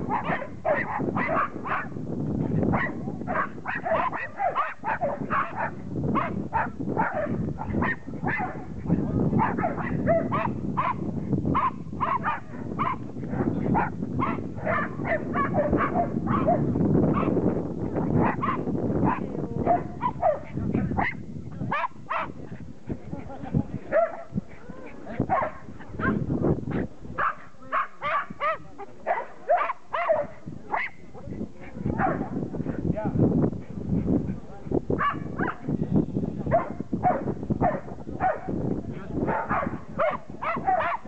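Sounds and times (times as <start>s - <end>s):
dog barking: 0.0s - 2.0s, 2.7s - 8.7s, 9.4s - 17.4s, 18.2s - 22.4s, 23.9s - 24.4s, 25.3s - 26.2s, 27.2s - 31.0s, 31.9s - 32.4s, 35.0s - 35.6s, 36.5s - 38.5s, 39.2s - 41.0s.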